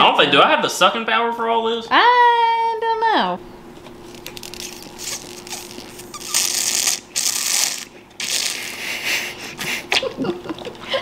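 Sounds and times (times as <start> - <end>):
sucking through straws: 4.2 - 9.0.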